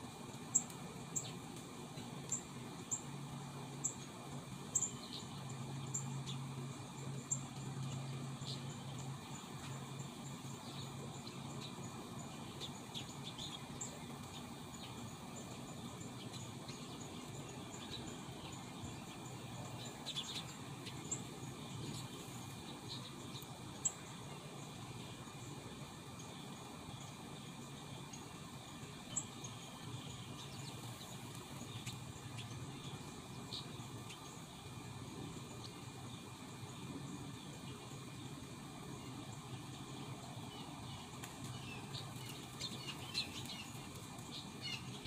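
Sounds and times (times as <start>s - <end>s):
faint low hum: 0.0s - 45.0s
birds chirping: 0.2s - 45.0s
insect trill: 2.2s - 45.0s.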